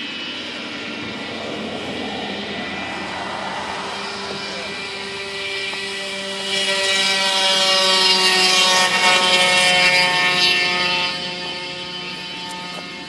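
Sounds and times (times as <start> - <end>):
moped engine running: 3.9 - 13.0.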